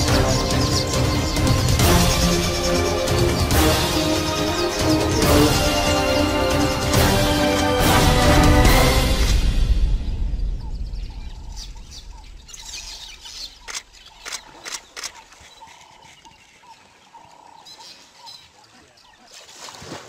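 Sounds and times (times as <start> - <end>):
music: 0.0 - 13.0
splashes in shallow water: 13.6 - 20.0.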